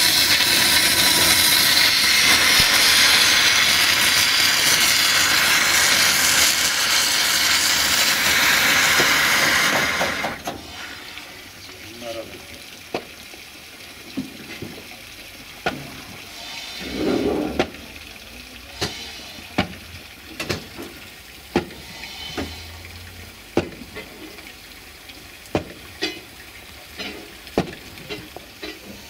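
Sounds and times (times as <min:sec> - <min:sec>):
steam hissing from locomotive: 0:00.0 - 0:11.6, 0:16.2 - 0:18.0, 0:18.6 - 0:19.8, 0:21.7 - 0:23.1, 0:28.1 - 0:29.0.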